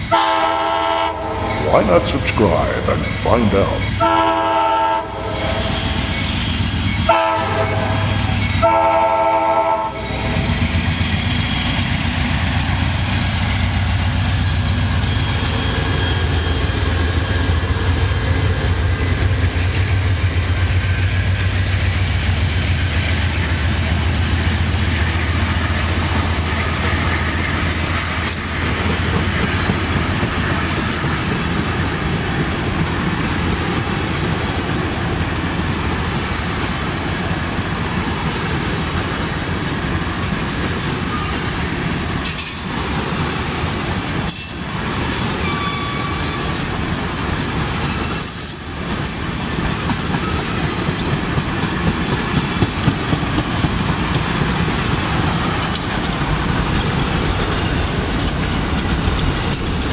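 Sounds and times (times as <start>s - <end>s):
train rumbling past: 0.0s - 59.9s
train horn blasts: 0.1s - 1.6s, 4.0s - 5.8s, 7.1s - 10.4s
wheels clacking over rail joints: 10.3s - 59.9s.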